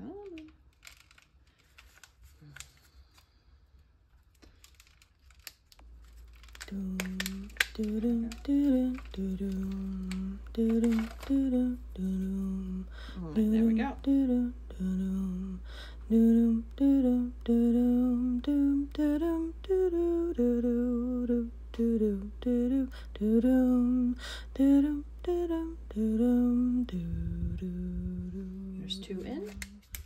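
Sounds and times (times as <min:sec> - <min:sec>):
woman humming: 0:06.6 - 0:29.8.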